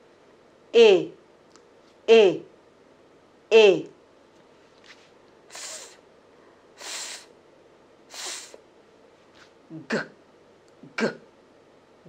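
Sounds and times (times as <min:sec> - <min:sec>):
woman making breathy f sound: 0:05.5 - 0:06.0, 0:08.1 - 0:08.6.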